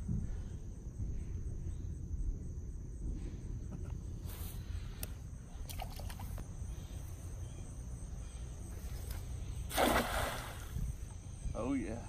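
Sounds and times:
steady low rumble: 0:00.0 - 0:05.7
faint high hum: 0:00.0 - 0:12.0
cast net splashing on water: 0:09.7 - 0:10.8.

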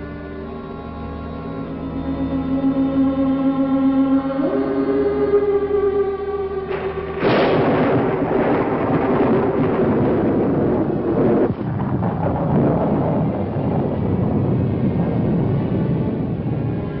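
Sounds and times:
sustained music notes: 0:00.0 - 0:17.0
thunder crash and rumble: 0:06.7 - 0:17.0.

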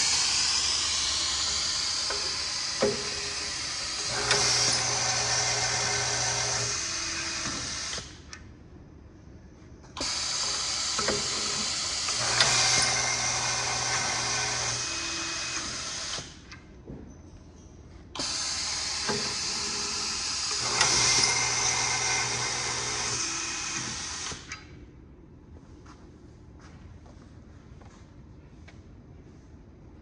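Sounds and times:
electric screwdriver motor hum: 0:00.0 - 0:08.0.

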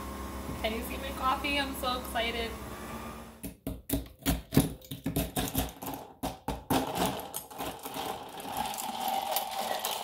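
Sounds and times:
ice clinking against glass: 0:08.5 - 0:10.0.

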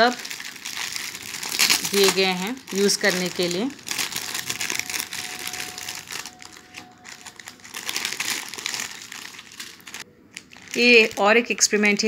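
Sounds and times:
plastic packets crinkling: 0:00.0 - 0:12.0.

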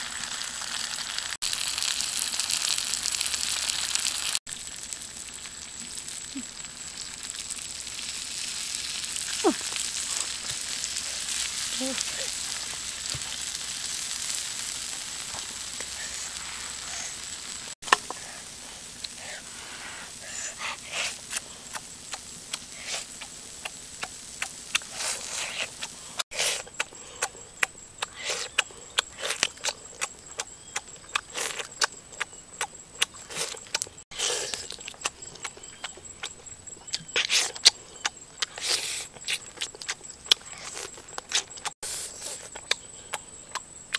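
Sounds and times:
ribs sizzling on a hot rock: 0:00.0 - 0:27.0
noisy chewing and lip-smacking: 0:20.5 - 0:43.9.

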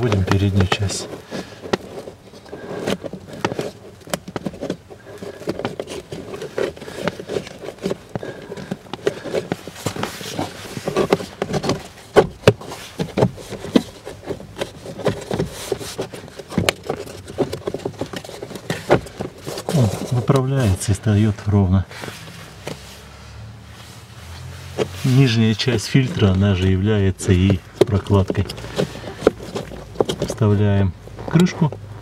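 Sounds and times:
filter scraping and rustling: 0:00.0 - 0:32.0
plastic knocks and clicks: 0:02.8 - 0:19.7, 0:26.1 - 0:30.6.

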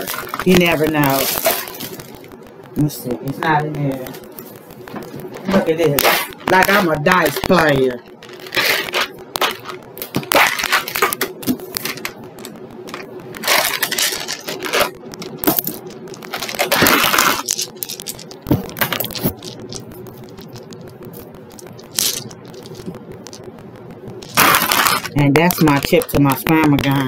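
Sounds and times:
dice rattling in plastic tub: 0:21.9 - 0:22.9.

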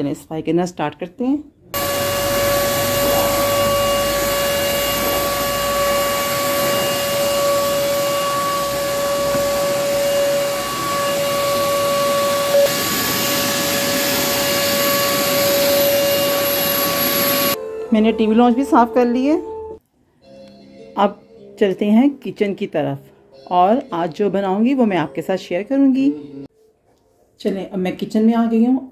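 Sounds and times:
vacuum cleaner running: 0:01.8 - 0:17.6.

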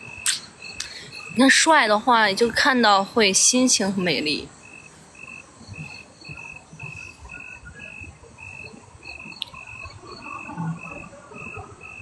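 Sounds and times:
insect chirping: 0:00.0 - 0:12.0
sharp click: 0:00.2 - 0:00.9.

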